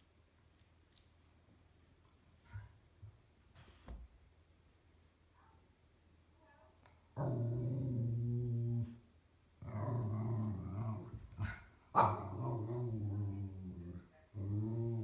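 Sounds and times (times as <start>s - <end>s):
dog growling: 7.2s - 9.0s, 9.6s - 15.0s.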